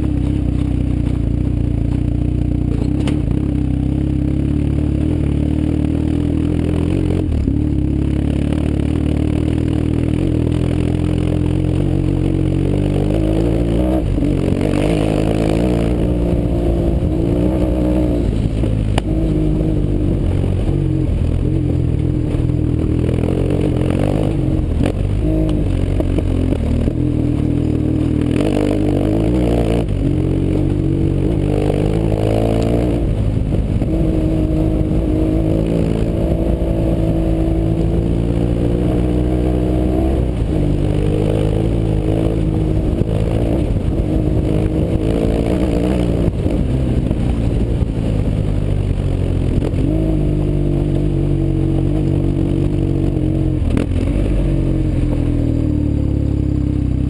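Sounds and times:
gravel clatter and scrape: 0.0 - 3.5
motorcycle engine revving: 0.0 - 57.0.

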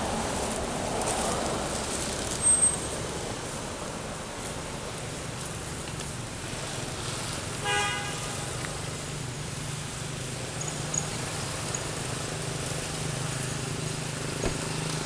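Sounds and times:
road traffic hum: 0.0 - 15.0
vehicle horn toot: 7.6 - 8.4.

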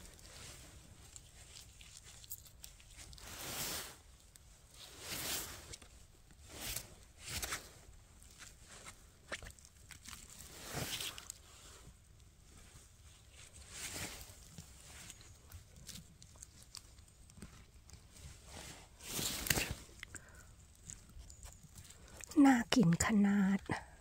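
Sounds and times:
twigs snapping: 19.2 - 20.0.

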